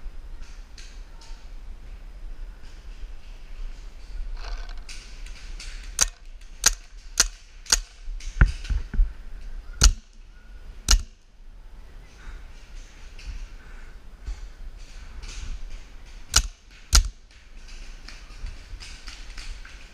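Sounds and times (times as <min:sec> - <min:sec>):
paintball marker shots: 0:09.8 - 0:10.2, 0:10.9 - 0:11.2, 0:16.2 - 0:17.2.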